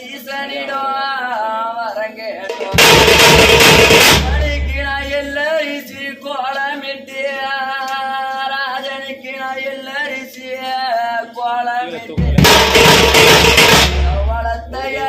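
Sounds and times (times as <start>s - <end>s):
person singing a lament: 4.2s - 12.6s, 14.0s - 15.0s.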